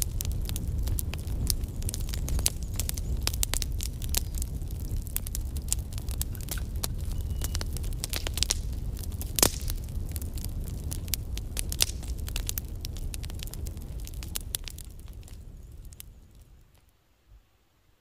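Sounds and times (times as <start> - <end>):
fire crackling and popping: 0.0 - 17.0
low fire rumble: 0.0 - 18.0.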